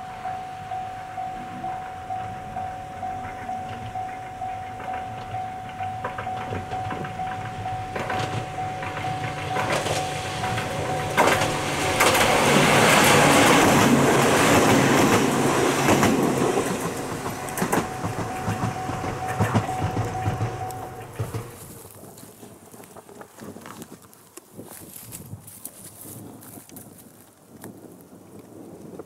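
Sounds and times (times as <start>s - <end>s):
steady high tone: 0.0s - 21.8s
electric train passing: 0.0s - 23.2s
wheels clacking over rail joints: 1.1s - 24.2s.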